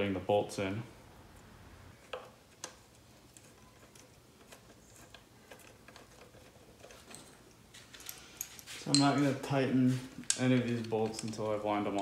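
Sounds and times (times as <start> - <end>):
small metallic clicks of bolts: 10.2 - 12.0.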